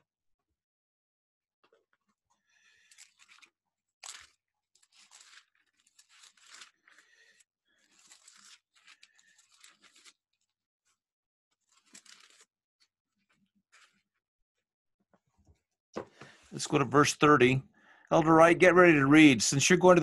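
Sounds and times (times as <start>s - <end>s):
paper pages rustling: 2.6s - 14.2s.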